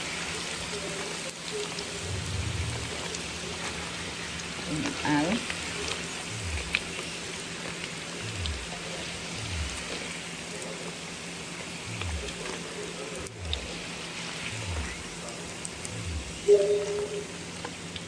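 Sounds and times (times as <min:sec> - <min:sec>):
hot oil sizzling in a wok: 0:00.0 - 0:18.0.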